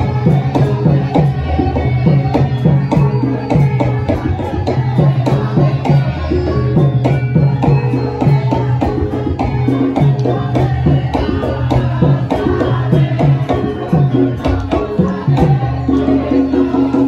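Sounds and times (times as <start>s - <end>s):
metallophones ringing: 0.0s - 17.0s.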